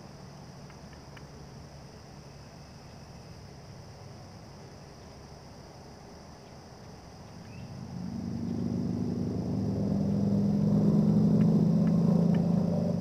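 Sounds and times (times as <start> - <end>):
vehicle engine hum: 6.8 - 13.0
faint bird chirps: 7.3 - 7.9.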